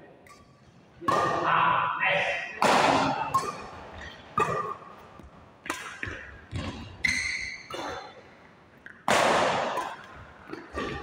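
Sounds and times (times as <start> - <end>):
racket hitting shuttlecock: 0.2 - 1.5, 2.5 - 11.0
shoe squeaking on court floor: 3.1 - 9.0.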